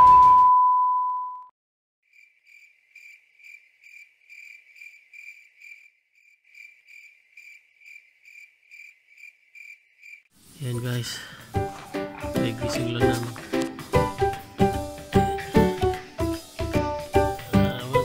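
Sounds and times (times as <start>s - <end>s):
test tone beep: 0.0s - 1.5s
cricket chirping: 2.1s - 10.3s.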